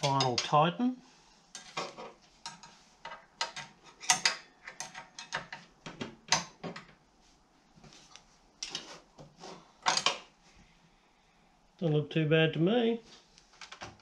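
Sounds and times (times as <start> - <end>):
spanner clicking and scraping on metal: 2.4 - 5.7.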